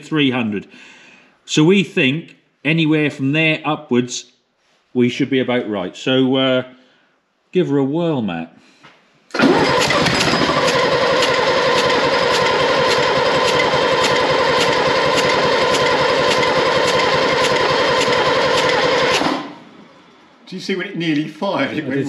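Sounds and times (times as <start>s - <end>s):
diesel engine cranking on starter: 9.3s - 19.8s.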